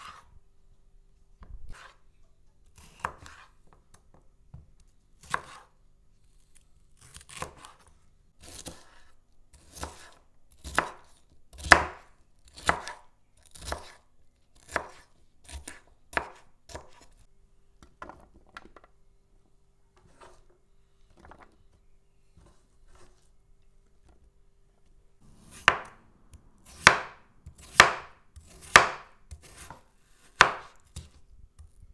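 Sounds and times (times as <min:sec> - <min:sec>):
knife cutting on wooden board: 0:00.0 - 0:00.3, 0:01.7 - 0:02.0, 0:02.8 - 0:03.6, 0:05.2 - 0:05.7, 0:07.0 - 0:11.0, 0:25.2 - 0:26.0, 0:26.6 - 0:31.7.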